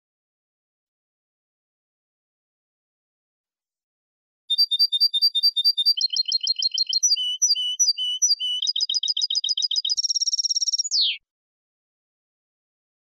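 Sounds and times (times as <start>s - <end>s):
goldfinch singing: 4.5s - 11.2s.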